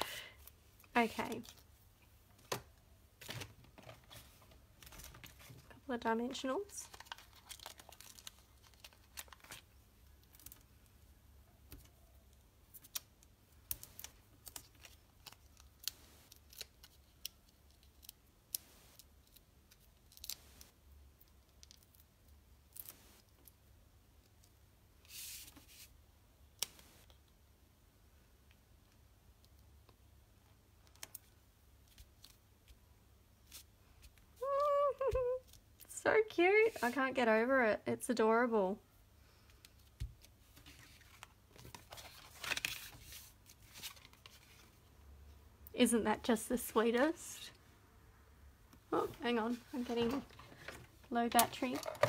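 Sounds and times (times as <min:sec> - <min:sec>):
hands rustling card stock: 0:06.3 - 0:10.8, 0:39.4 - 0:44.8, 0:49.0 - 0:52.0.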